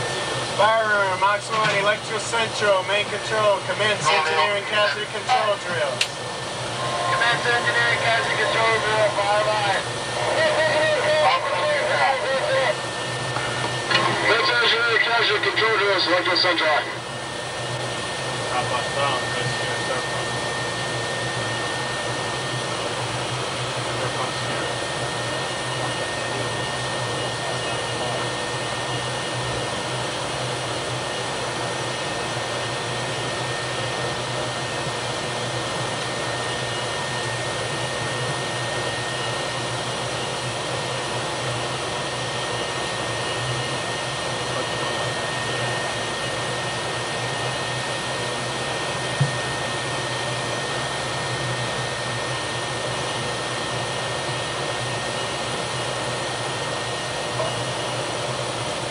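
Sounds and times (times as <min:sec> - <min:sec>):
steady high whine: 0:00.0 - 0:58.9
machinery rushing roar: 0:03.5 - 0:22.4.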